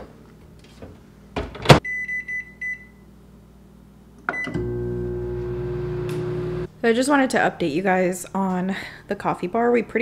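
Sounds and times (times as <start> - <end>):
microwave running hum: 4.2 - 6.7.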